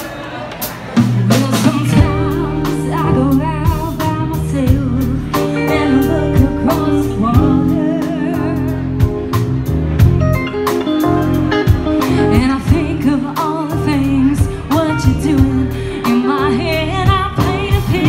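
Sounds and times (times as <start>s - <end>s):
drum kit: 0.0s - 18.0s
woman singing with vibrato: 1.3s - 8.9s, 12.1s - 18.0s
low bass notes: 1.9s - 18.0s.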